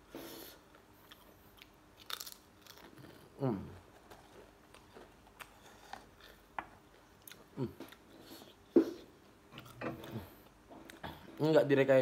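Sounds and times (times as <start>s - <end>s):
chewing crisp potato chips: 0.7s - 8.1s.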